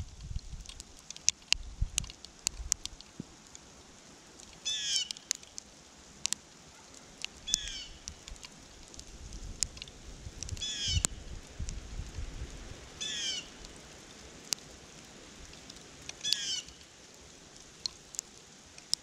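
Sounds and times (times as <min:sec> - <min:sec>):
bird calling: 0:04.6 - 0:05.3, 0:07.5 - 0:08.1, 0:10.6 - 0:11.1, 0:13.0 - 0:13.5, 0:16.2 - 0:16.8
sharp ticks: 0:07.2 - 0:08.6, 0:09.6 - 0:11.2.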